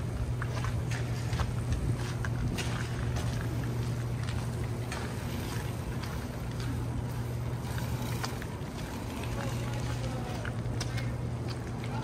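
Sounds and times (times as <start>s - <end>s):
footsteps on slushy sidewalk: 0.0s - 12.0s
low hum: 0.0s - 12.0s
wash of noise: 0.0s - 12.0s.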